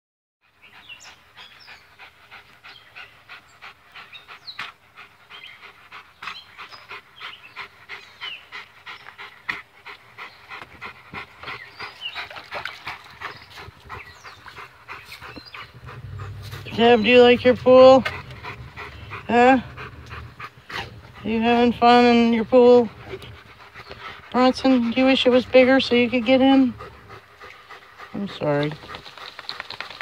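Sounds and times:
dog panting: 0.5s - 30.0s.

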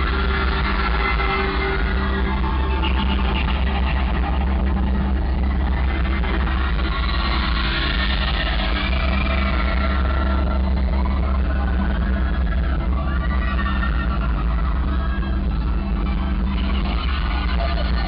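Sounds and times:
heavy bass: 0.0s - 18.0s
live concert music over speakers: 0.0s - 18.0s.

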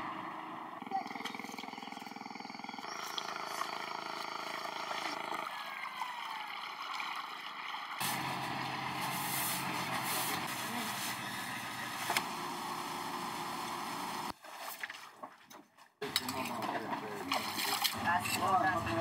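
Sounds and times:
boat engine running: 0.0s - 5.5s
water wash: 6.6s - 11.4s.

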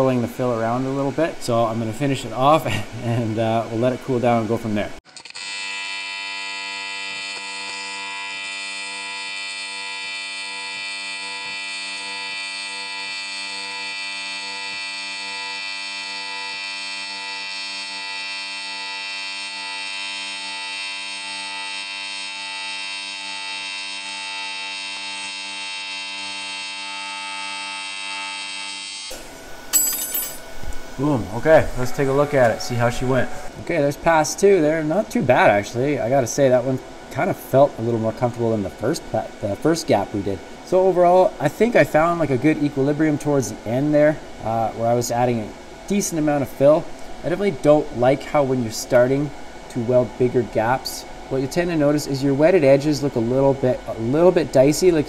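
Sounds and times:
welding arc buzzing: 5.2s - 42.3s.

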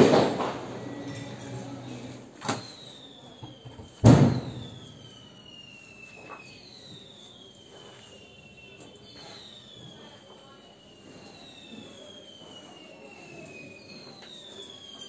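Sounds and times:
sharp bangs: 0.0s - 2.8s, 3.8s - 5.3s
high falling whistle: 0.0s - 15.0s.

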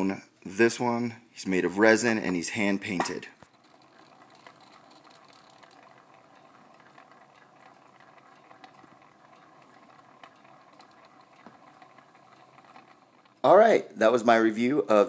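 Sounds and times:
turntable motor whir: 1.8s - 13.5s.

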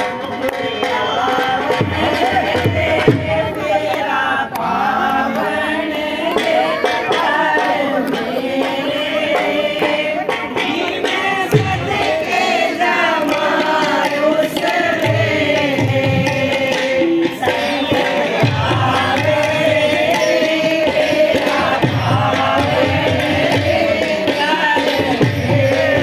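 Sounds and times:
hand-clapping: 0.0s - 1.8s, 3.5s - 8.7s
women singing together: 0.0s - 26.0s
drum beat: 0.7s - 26.0s.

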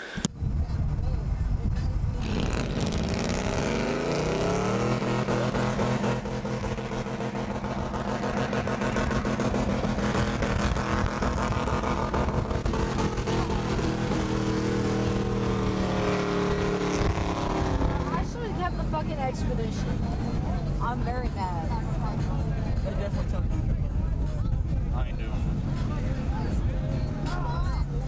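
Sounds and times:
pickup truck engine revving: 2.2s - 21.1s.

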